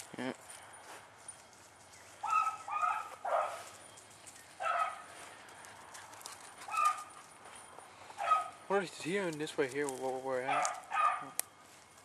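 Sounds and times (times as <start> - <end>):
hound baying: 2.2 - 3.7, 4.6 - 8.7, 10.4 - 11.4.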